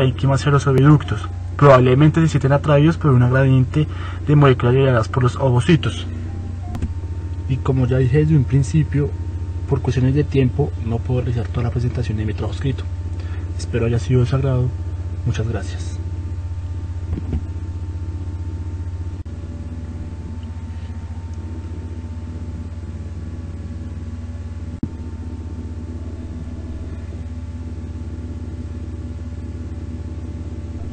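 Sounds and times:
faint steady tones: 0.0 - 14.7, 24.6 - 30.9
steady low hum: 0.0 - 30.9.

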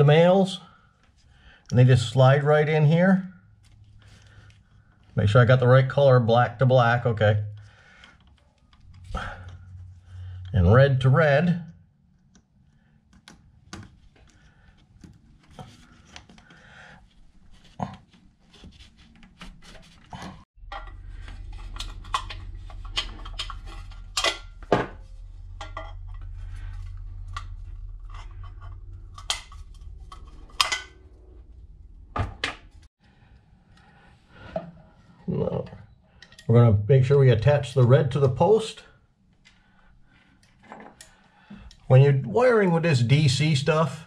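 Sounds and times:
steady low hum: 7.2 - 17.4, 20.6 - 35.3.

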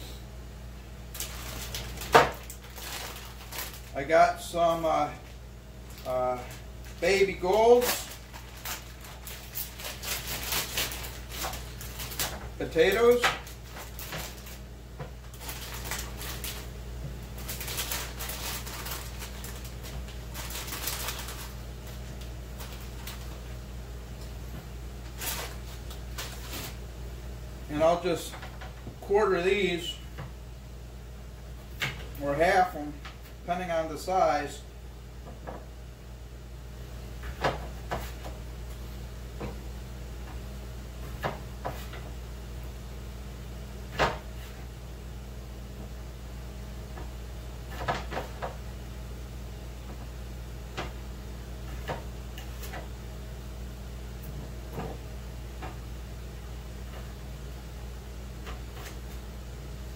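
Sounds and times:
low steady hum: 0.0 - 59.9
plastic bag crinkling: 1.1 - 4.1, 5.2 - 16.7, 17.3 - 23.5, 25.0 - 26.8.

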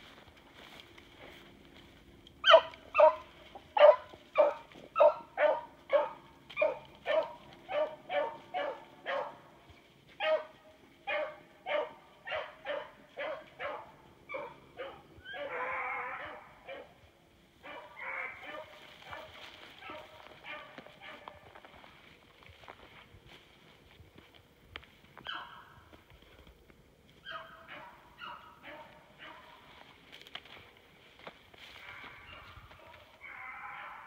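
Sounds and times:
hound barking: 2.4 - 9.5, 10.2 - 17.0, 17.6 - 21.7, 25.2 - 25.8, 27.2 - 29.8, 31.8 - 34.0.

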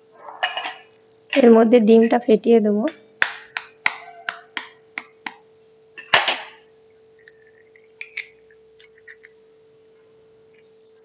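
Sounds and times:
egg tapping on glass bowl: 2.9 - 5.4.

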